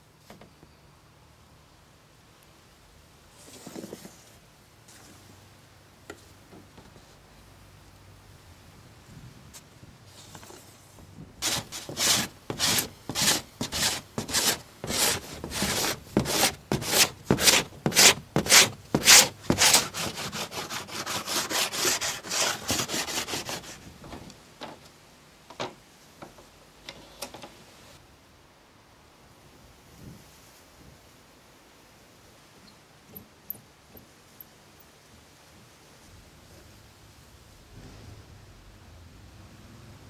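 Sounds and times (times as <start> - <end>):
hand tool scraping wood: 11.4 - 23.9.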